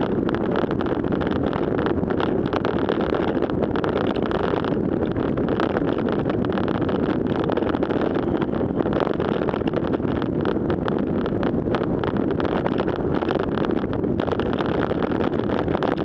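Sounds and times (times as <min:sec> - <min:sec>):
small crackles: 0:00.0 - 0:16.0
wind on microphone: 0:00.0 - 0:16.0.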